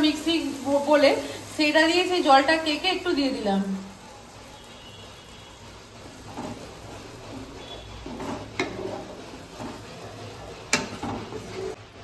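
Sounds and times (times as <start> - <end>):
spoon stirring and scraping a pan: 4.2 - 11.8.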